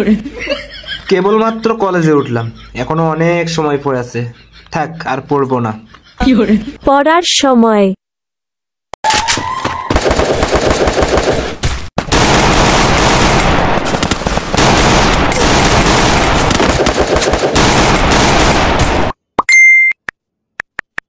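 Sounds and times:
rapid automatic gunfire: 9.9 - 19.1.

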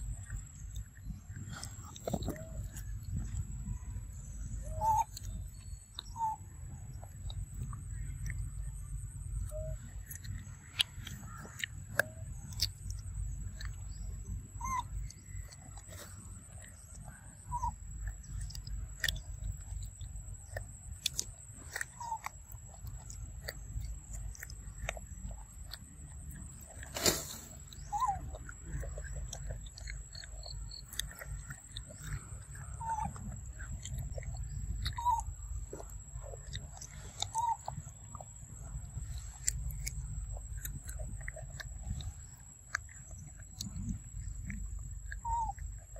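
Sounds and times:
monkey chewing food: 0.0 - 45.9.

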